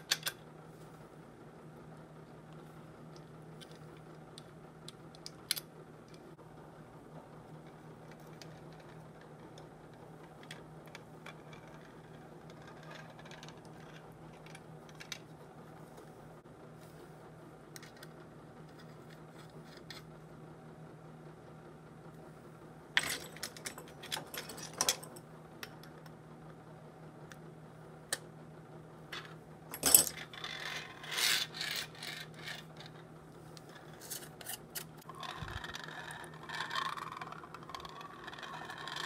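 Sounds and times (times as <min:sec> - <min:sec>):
metal parts clicking and tapping: 0:00.0 - 0:00.4, 0:23.0 - 0:26.0, 0:29.2 - 0:33.0
low hum: 0:00.0 - 0:39.0.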